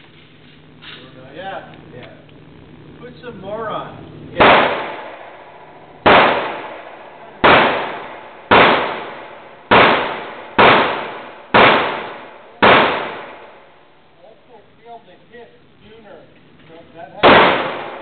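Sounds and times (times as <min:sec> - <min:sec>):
revolver gunshots echoing indoors: 0:04.2 - 0:13.9, 0:17.2 - 0:18.0.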